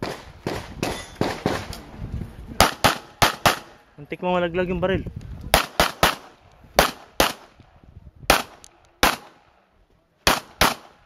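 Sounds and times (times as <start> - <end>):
pistol shots: 0.0 - 1.7, 2.6 - 3.8, 5.5 - 7.5, 8.3 - 9.5, 10.2 - 11.0.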